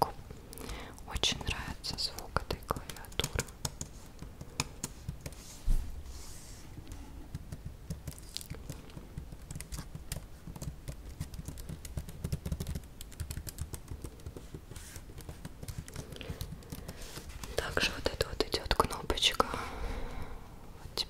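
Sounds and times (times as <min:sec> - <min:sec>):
fingernails tapping on laptop keys: 0:01.4 - 0:05.4, 0:07.3 - 0:17.6
hand rubbing on plastic: 0:01.4 - 0:12.6, 0:13.8 - 0:18.9.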